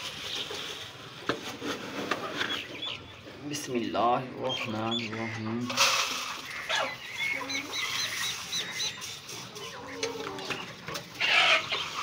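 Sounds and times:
chickens clucking and chirping: 0.0s - 12.0s
grain rattling into feeder: 5.7s - 6.7s.

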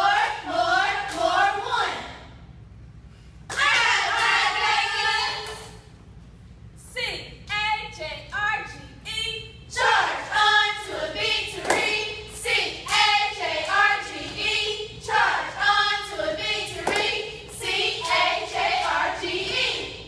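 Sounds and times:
group shouting a cheer: 3.5s - 5.6s
hands clapping: 11.6s - 12.0s, 16.8s - 17.2s.

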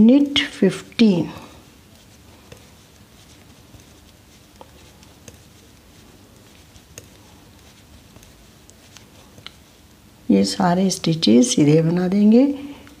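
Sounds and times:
low steady hum: 0.0s - 13.0s
yarn rustling: 0.8s - 11.0s.

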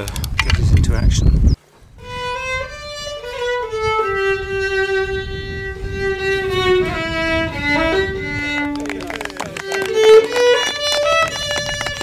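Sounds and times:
fiddle playing a slow tune: 2.0s - 12.0s.

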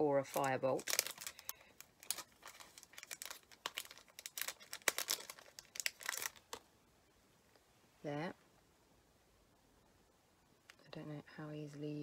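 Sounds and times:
plastic wrapper crinkling: 0.0s - 6.7s.

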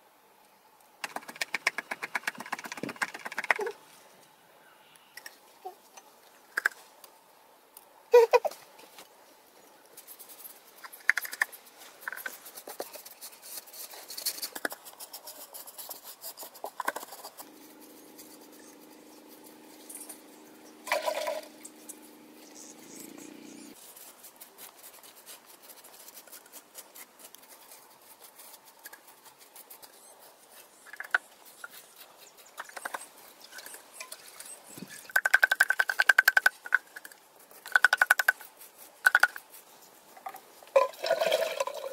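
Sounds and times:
paint brushes on wall: 9.8s - 41.9s
steady low hum: 17.2s - 23.8s.

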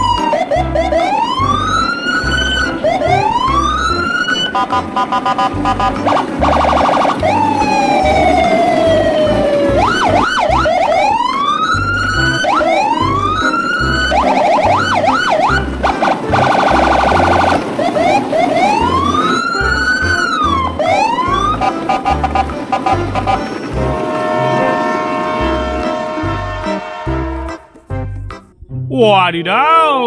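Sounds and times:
fast wavering wails: 0.0s - 27.5s
long falling tone: 0.0s - 27.7s
rapid electronic beeping: 2.2s - 7.5s, 14.2s - 19.1s
background music with bass beat: 25.7s - 28.9s.

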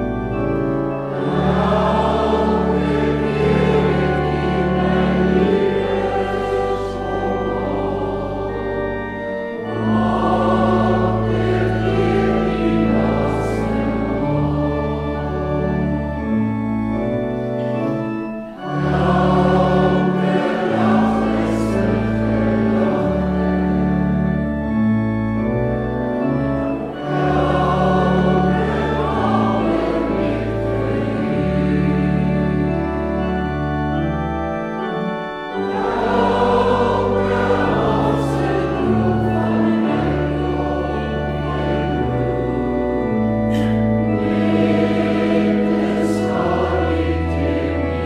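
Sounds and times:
organ bass notes: 0.0s - 48.0s
group of voices singing: 1.2s - 8.8s, 9.5s - 15.2s, 18.8s - 23.0s, 27.0s - 32.3s, 35.6s - 42.8s, 43.5s - 48.0s.

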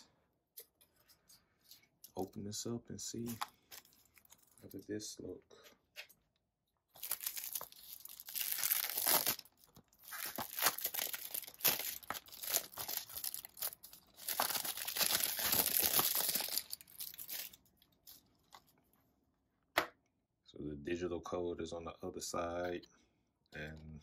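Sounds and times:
plastic shrink-wrap crinkling: 3.2s - 4.8s, 6.9s - 18.7s.

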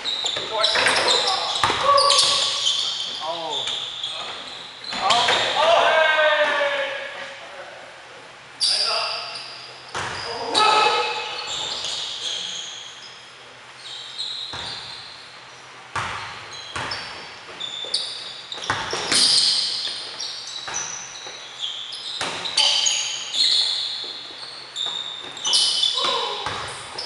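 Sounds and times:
sneakers squeaking: 0.0s - 5.8s, 8.6s - 27.0s
basketball bouncing on hardwood: 18.6s - 19.2s.

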